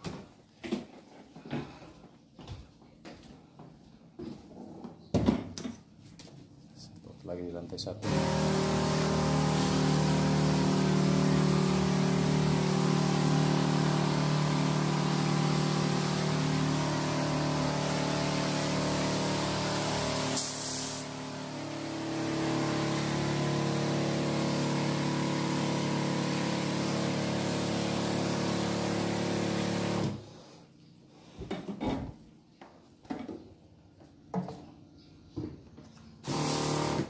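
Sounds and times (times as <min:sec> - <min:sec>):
liquid spray hissing: 0:08.0 - 0:30.1, 0:36.2 - 0:37.0
sprayer pump motor humming: 0:08.0 - 0:30.2, 0:36.2 - 0:37.0.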